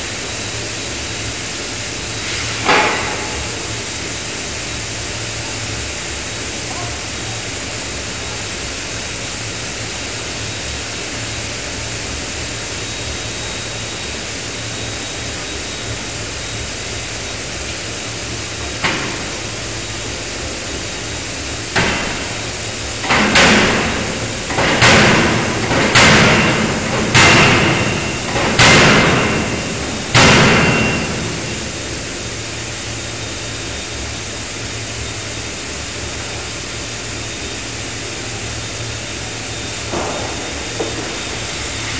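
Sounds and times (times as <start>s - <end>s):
steady background noise: 0.0s - 41.9s
forging hammer striking steel: 23.0s - 31.8s.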